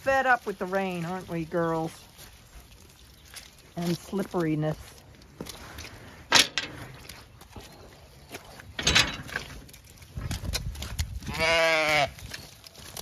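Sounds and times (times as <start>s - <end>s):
sheep walking through mud: 0.0s - 13.0s
metal gate bolt clanking: 6.3s - 7.0s, 8.7s - 9.7s
sheep bleating: 11.3s - 12.2s.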